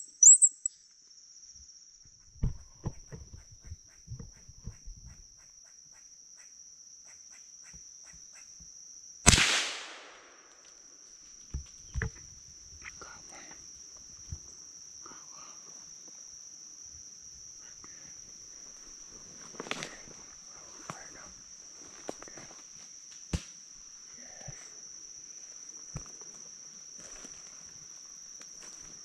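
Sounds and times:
high-pitched insect drone: 0:00.0 - 0:09.2
loud gunshot: 0:09.3 - 0:10.5.

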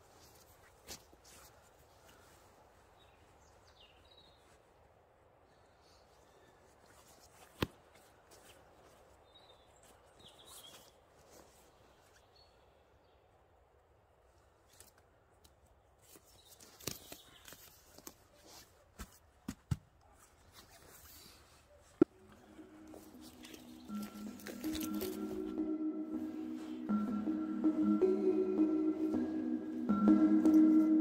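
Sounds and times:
rustling and handling noise: 0:00.0 - 0:03.7, 0:05.8 - 0:12.3, 0:14.3 - 0:27.1.

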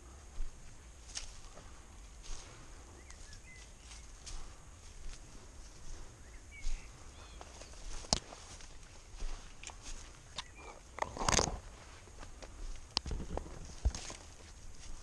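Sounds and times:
footsteps crunching through leaves: 0:00.4 - 0:10.9, 0:11.5 - 0:15.0
twigs rustling and scraping: 0:00.6 - 0:15.0.

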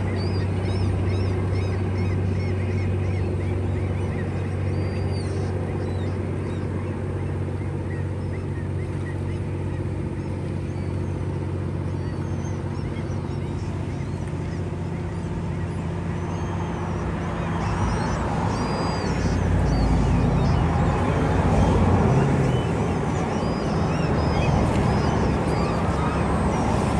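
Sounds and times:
birds calling: 0:00.0 - 0:26.9
low motor hum: 0:00.0 - 0:26.9.

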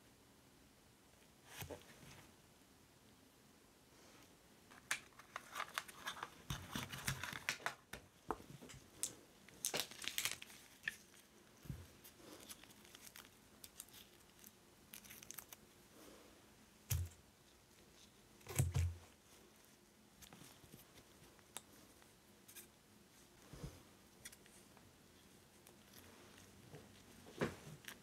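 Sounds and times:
resin sheet crinkling and clicking: 0:04.7 - 0:15.6.

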